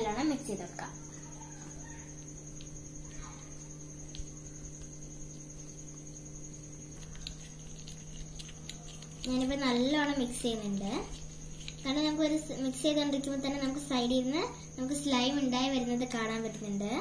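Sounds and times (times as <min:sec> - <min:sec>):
steady low hum: 0:00.0 - 0:17.0
spoon stirring slime: 0:07.0 - 0:12.8.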